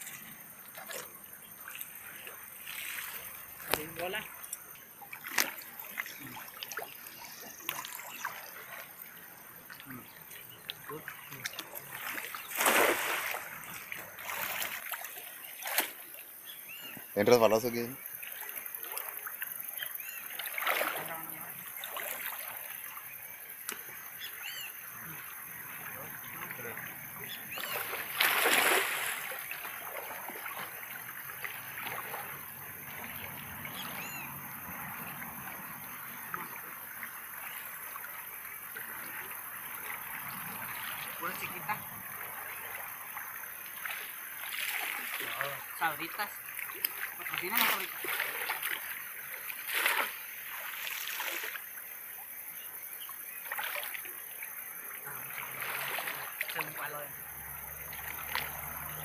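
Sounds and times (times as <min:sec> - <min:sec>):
cast net splashing into water: 0:00.7 - 0:09.0, 0:10.8 - 0:16.2, 0:20.2 - 0:22.8, 0:26.3 - 0:34.1, 0:36.2 - 0:51.7, 0:53.4 - 0:54.2, 0:55.2 - 0:59.0.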